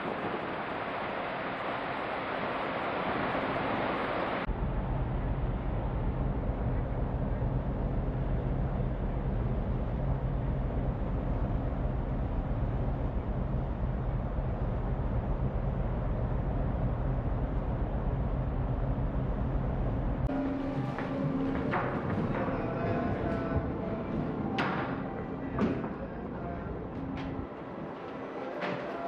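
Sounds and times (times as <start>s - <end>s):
propeller churned water rushing: 0.0s - 4.5s
ferry engines droning: 0.0s - 29.0s.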